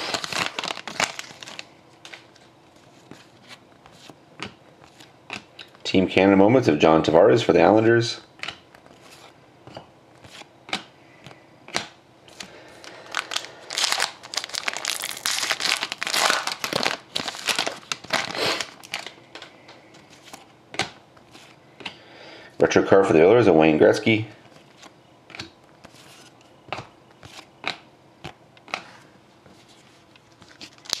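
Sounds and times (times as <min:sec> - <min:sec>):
foil wrapper crinkling: 0:00.0 - 0:02.4, 0:12.4 - 0:19.5, 0:30.3 - 0:31.0.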